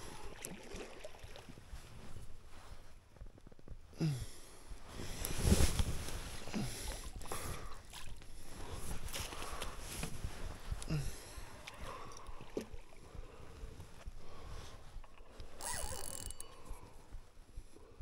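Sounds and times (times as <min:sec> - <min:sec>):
fishing reel clicks and rustles: 0:15.2 - 0:17.0.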